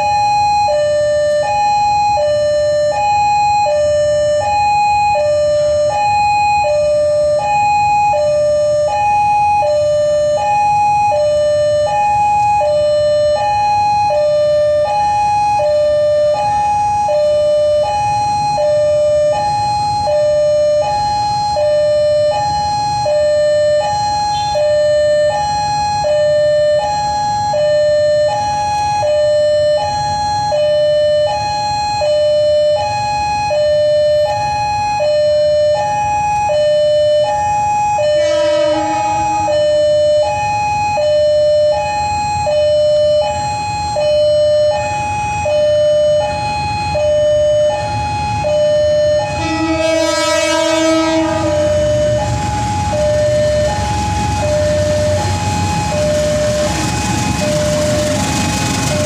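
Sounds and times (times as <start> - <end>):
traffic hum: 37.1 - 59.0.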